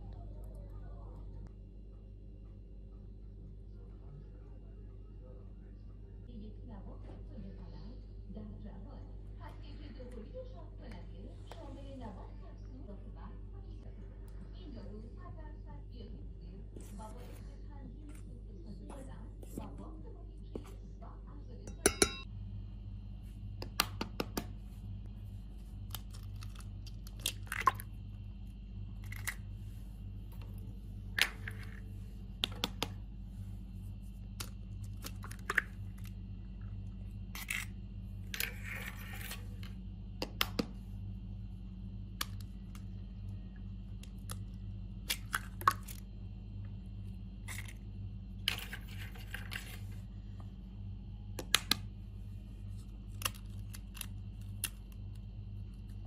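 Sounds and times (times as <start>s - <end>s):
steady low hum: 0.0s - 56.0s
eggshell tapping: 21.7s - 22.3s
eggshells crackling apart: 25.8s - 28.0s, 43.8s - 46.1s, 47.4s - 49.8s, 52.8s - 56.0s.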